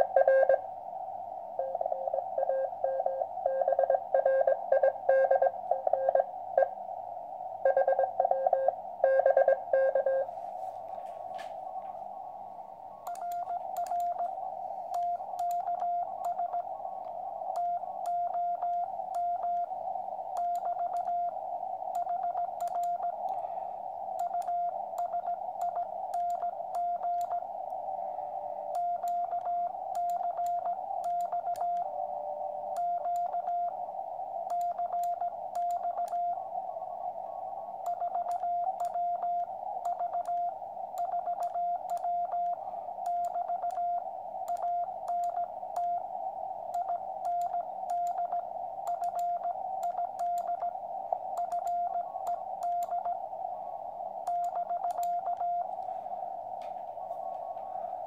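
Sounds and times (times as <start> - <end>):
receiver hiss: 0.0 - 58.0
faint clicks: 13.0 - 14.3, 14.9 - 19.7, 20.3 - 21.2, 21.9 - 23.4, 24.2 - 27.8, 28.7 - 31.9, 34.4 - 36.2, 37.8 - 46.0, 46.7 - 53.2, 54.2 - 55.9
morse code tone: 54.3 - 55.8.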